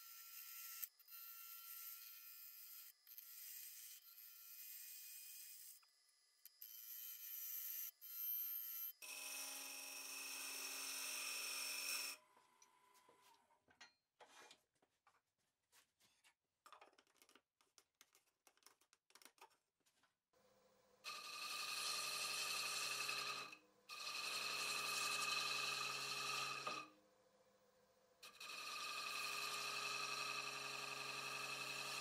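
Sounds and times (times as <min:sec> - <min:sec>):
gouge cutting wood on lathe: 0:21.1 - 0:26.9, 0:28.2 - 0:32.0.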